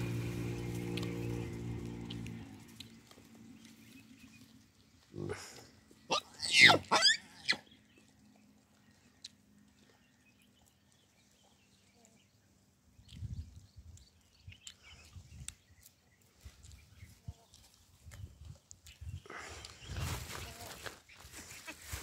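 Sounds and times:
baboon calls: 0:06.1 - 0:07.6.

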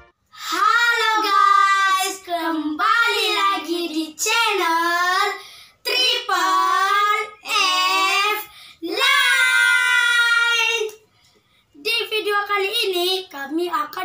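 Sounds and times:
boys singing a tune: 0:00.4 - 0:11.0.

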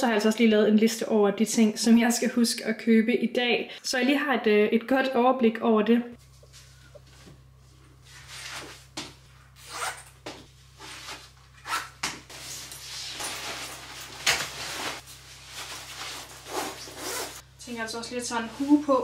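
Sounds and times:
padded coat swishing: 0:12.3 - 0:17.4.

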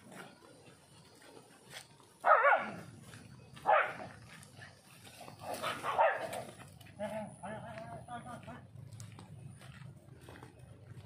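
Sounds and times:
dog barking: 0:02.2 - 0:02.9, 0:03.6 - 0:04.2, 0:05.4 - 0:06.6.

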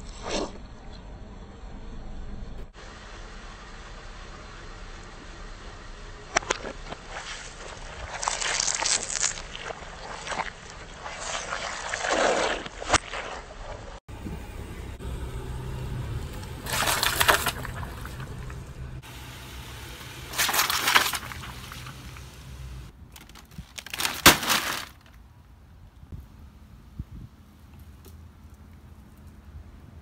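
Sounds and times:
low steady hum: 0:00.7 - 0:11.4, 0:13.6 - 0:23.1
tyre crushing squishy toys: 0:06.3 - 0:14.0, 0:16.6 - 0:18.3, 0:20.3 - 0:22.3, 0:22.9 - 0:25.2.

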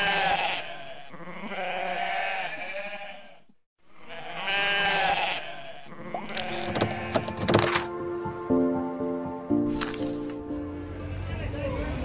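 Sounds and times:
goat bleating: 0:00.0 - 0:07.3.

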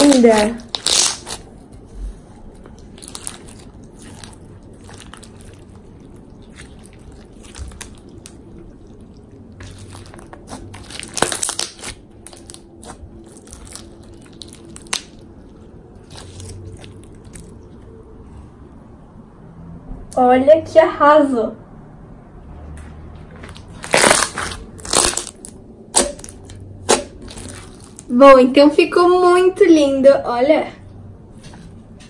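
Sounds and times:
slime crunching and crackling: 0:00.0 - 0:17.9, 0:23.4 - 0:28.3.

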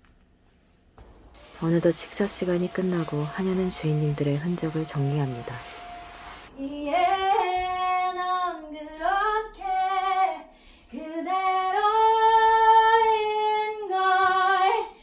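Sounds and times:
woman singing alone: 0:06.6 - 0:15.0.

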